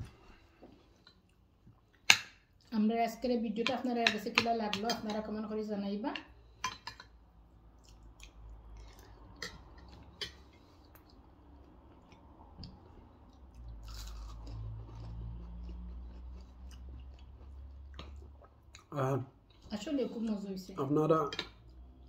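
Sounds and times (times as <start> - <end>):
crunching and chewing: 7.7 - 18.9.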